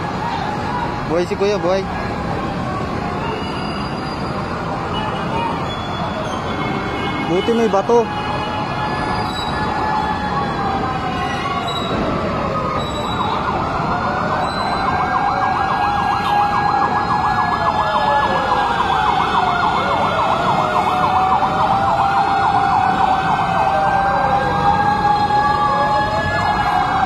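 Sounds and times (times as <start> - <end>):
rising and falling siren wail: 0.0 - 27.0
rapid warbling siren yelp: 8.0 - 27.0.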